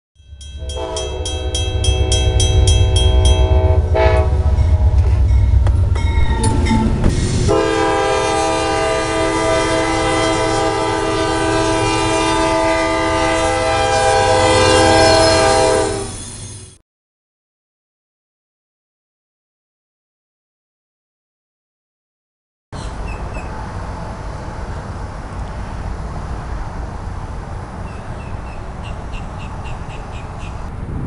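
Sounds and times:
fast ringing bell: 0.2 - 3.8
heavy rumble of passing train: 0.2 - 16.8, 22.8 - 31.0
diesel locomotive horn: 0.5 - 16.2.

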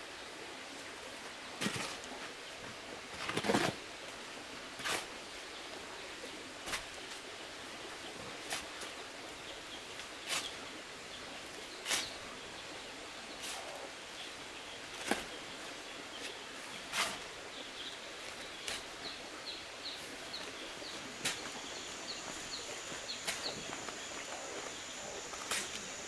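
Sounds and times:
small birds chirping: 7.6 - 26.0
hoe scraping sand and cement: 10.2 - 10.6, 11.8 - 12.2, 13.4 - 13.8, 16.2 - 17.3, 19.8 - 26.0.

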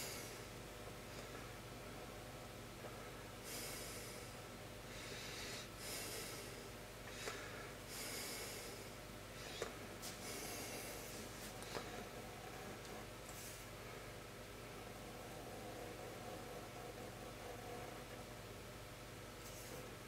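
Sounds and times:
person breathing: 0.0 - 0.5, 3.4 - 12.3
faint steady hum: 0.0 - 20.0.

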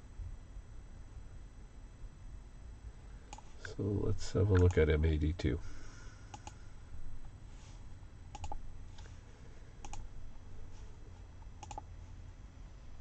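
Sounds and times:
faint low hum: 0.0 - 13.0
keyboard keys clicking: 8.3 - 8.6, 11.6 - 11.8.

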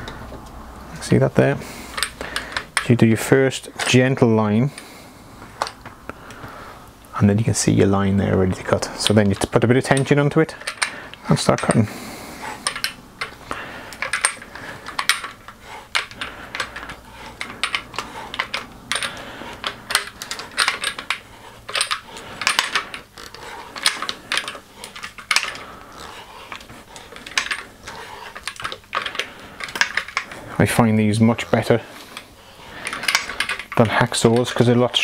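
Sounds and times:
pipe cutter clicking and scraping: 8.8 - 11.8, 12.4 - 30.4, 31.4 - 35.0.

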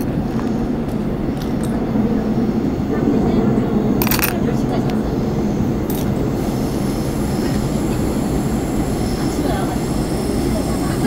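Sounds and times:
subway train rumbling: 0.0 - 11.0
plastic miniatures clicking: 4.0 - 4.4.

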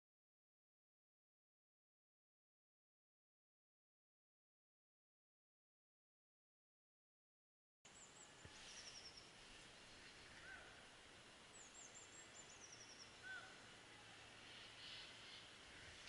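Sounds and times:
faint birdsong: 7.9 - 16.0.

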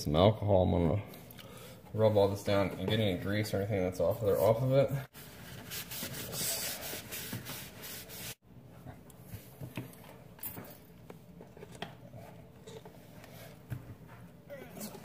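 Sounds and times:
paper towel rubbing on wood: 4.2 - 8.4.

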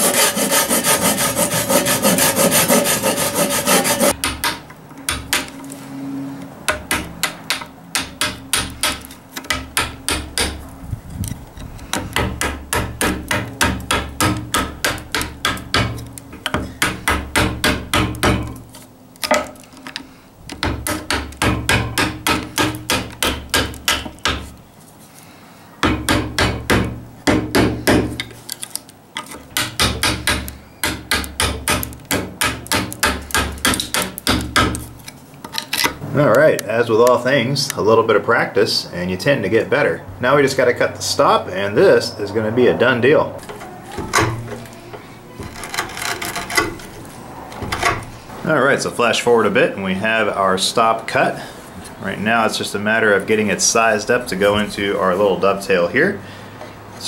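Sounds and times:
hand saw cutting wood: 0.0 - 4.3, 29.2 - 35.0, 45.3 - 47.0
hammer tapping chisel: 0.0 - 5.5, 6.7 - 10.6, 11.9 - 18.6, 19.2 - 24.5, 29.2 - 34.9, 45.4 - 46.9.

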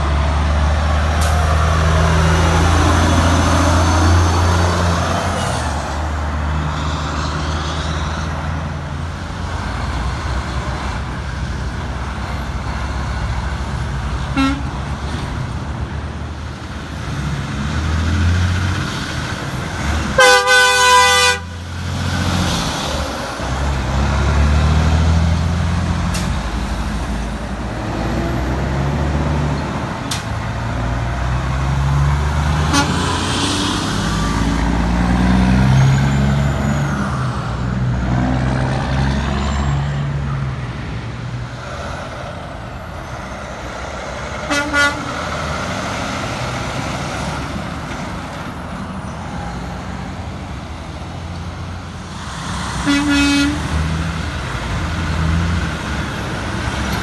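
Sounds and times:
diesel trucks accelerating past: 0.0 - 57.0
truck horn toot: 14.3 - 14.8, 20.2 - 21.6, 32.6 - 33.2, 44.4 - 45.3, 52.8 - 53.8.

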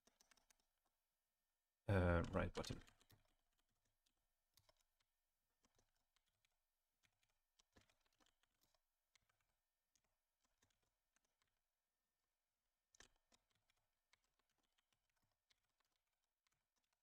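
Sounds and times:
computer keyboard typing: 0.0 - 0.6.

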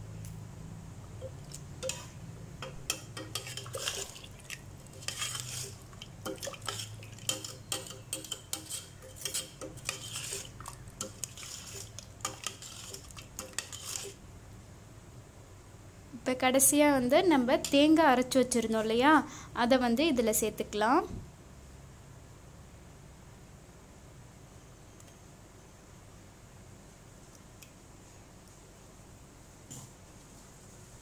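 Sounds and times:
metal ladle scraping a pot: 1.8 - 14.2.

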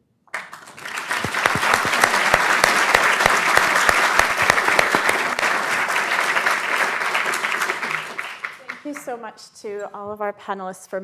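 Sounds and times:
audience applauding: 0.3 - 9.2.

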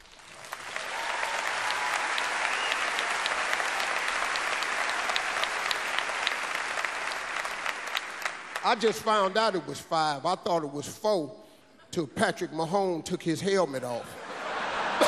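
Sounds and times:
large audience applauding: 0.0 - 9.4.

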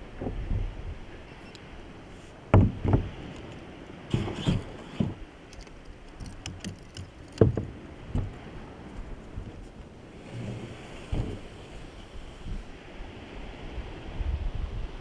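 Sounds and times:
dull thumps and knocks of kayak: 2.5 - 3.5, 4.1 - 5.3, 6.1 - 11.8.

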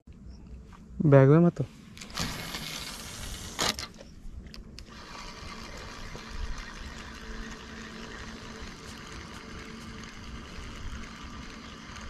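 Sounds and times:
fishing reel whirring: 2.0 - 3.9, 4.8 - 12.0.

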